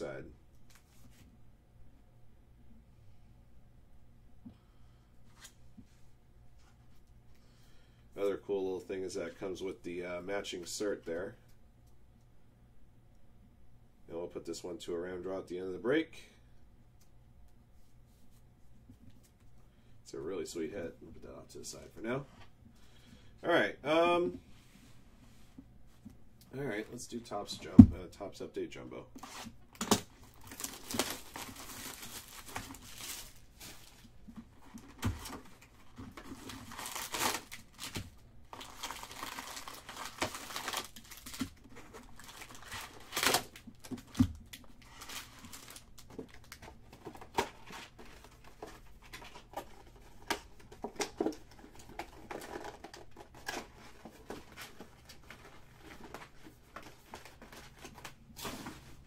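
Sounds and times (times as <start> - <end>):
wrappers crinkling and tearing: 29.2 - 59.0.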